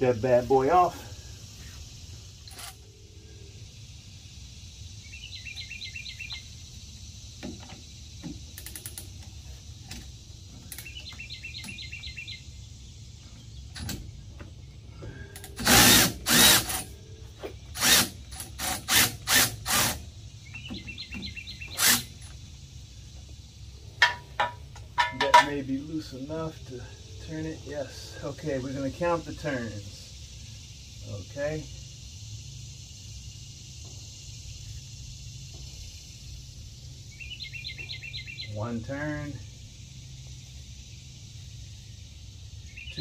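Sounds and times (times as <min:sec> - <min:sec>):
impact wrench bursts: 0:15.4 - 0:17.0, 0:17.7 - 0:20.1, 0:21.6 - 0:22.3.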